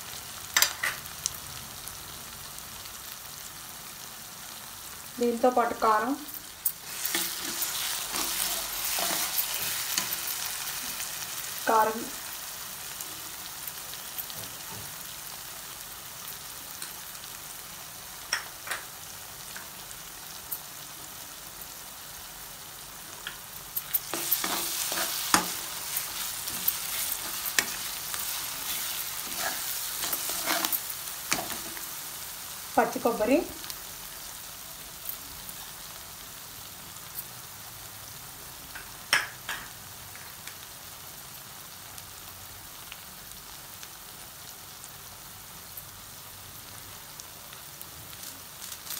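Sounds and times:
onions frying in oil: 0.0s - 48.9s
metal spatula scraping pan: 6.8s - 10.4s, 23.9s - 31.8s.

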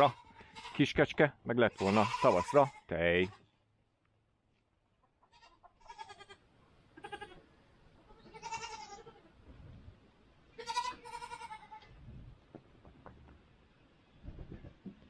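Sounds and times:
goat bleating: 0.0s - 3.6s, 5.2s - 9.4s, 10.5s - 12.0s.

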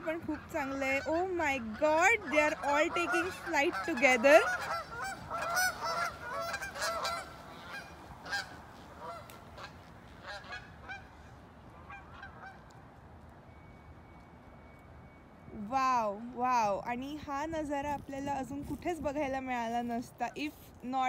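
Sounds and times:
geese honking: 0.0s - 12.8s.

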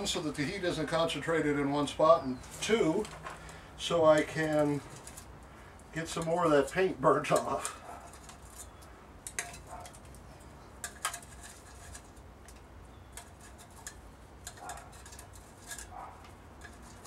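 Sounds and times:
metal tongs clicking on can: 6.1s - 8.4s, 9.2s - 10.2s, 10.8s - 15.9s.

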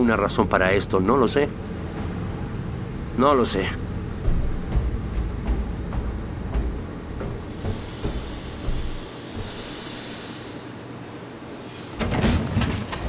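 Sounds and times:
engine-room machinery humming: 0.9s - 13.0s
loud clattering knocks: 3.8s - 9.8s, 12.0s - 13.0s
hiss: 7.4s - 12.3s.

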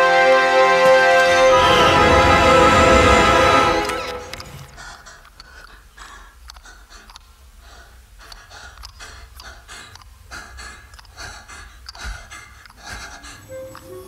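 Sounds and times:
quick heavy breathing: 4.4s - 14.0s.

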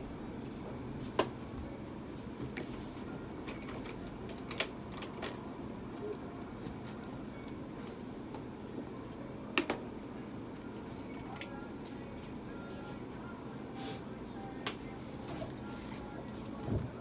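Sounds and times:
room equipment hum: 0.0s - 17.0s.

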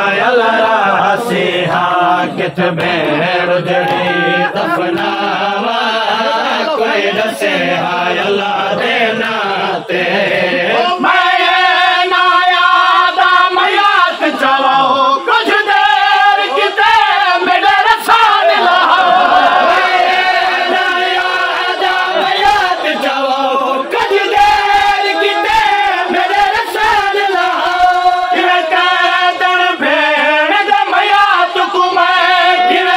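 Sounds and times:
men chanting a lament: 0.0s - 32.9s.

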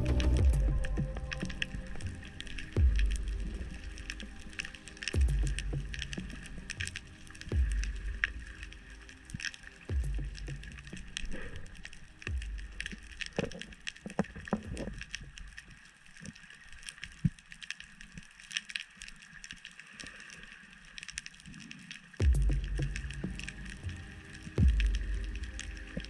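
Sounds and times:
dull low thumps: 0.0s - 1.8s, 2.8s - 3.8s, 5.2s - 6.3s, 7.5s - 8.3s, 9.9s - 10.9s, 12.3s - 12.9s, 22.2s - 23.5s, 24.6s - 25.4s
underwater crackle of clicks: 0.0s - 26.0s.

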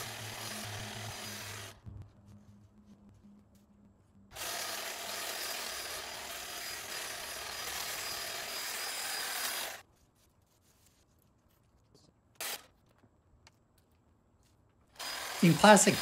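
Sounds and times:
hedge trimmer cutting branches: 0.0s - 1.8s, 4.4s - 9.8s, 15.0s - 16.0s.

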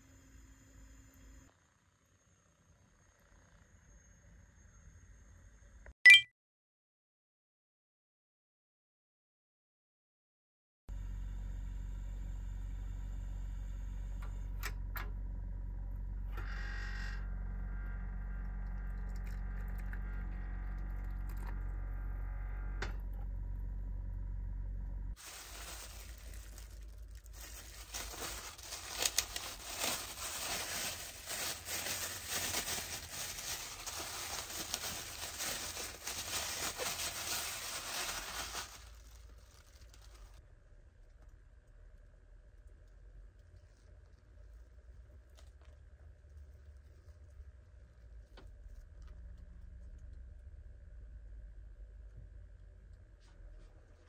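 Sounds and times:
plastic bag crinkling: 25.2s - 40.4s.

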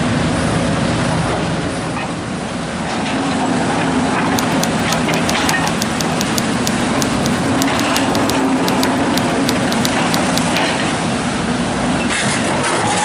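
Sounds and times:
light ticks: 4.4s - 10.6s.

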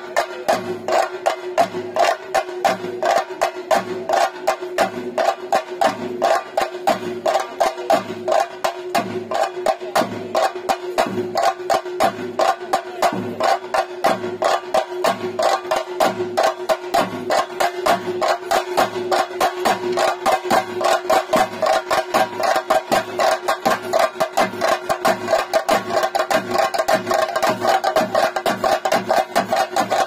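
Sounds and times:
drums struck with sticks: 0.0s - 30.0s.

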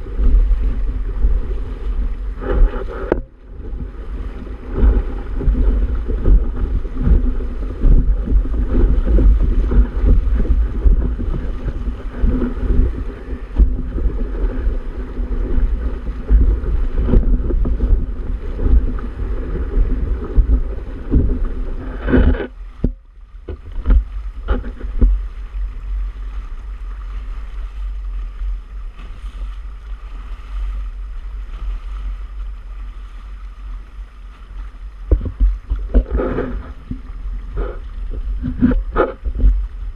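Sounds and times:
water splashing along hull: 0.0s - 39.9s
wind buffeting microphone: 0.0s - 39.9s.

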